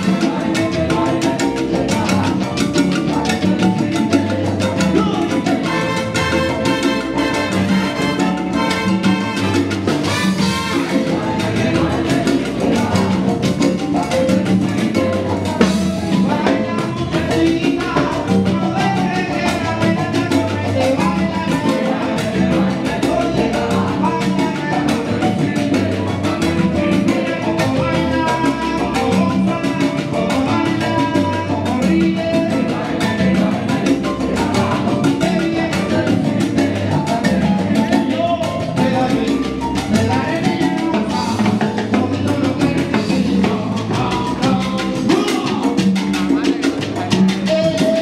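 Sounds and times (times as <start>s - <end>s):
bass and piano: 0.0s - 48.0s
congas and timbales: 0.0s - 48.0s
lead singer singing: 16.1s - 26.3s.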